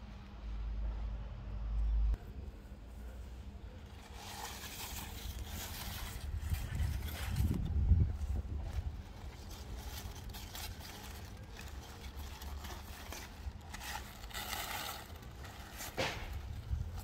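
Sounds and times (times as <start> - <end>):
leaves rustling and crunching: 3.8 - 17.0.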